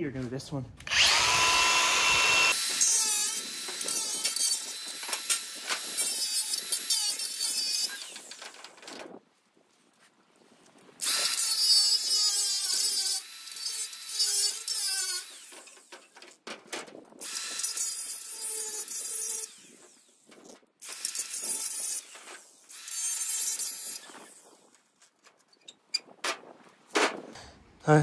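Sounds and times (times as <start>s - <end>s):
angle grinder grinding metal: 0.8s - 8.5s, 11.0s - 16.2s, 17.2s - 24.7s.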